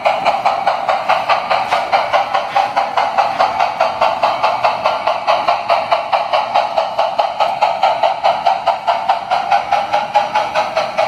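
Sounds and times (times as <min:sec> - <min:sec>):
model steam locomotive chuffing: 0:00.0 - 0:11.0.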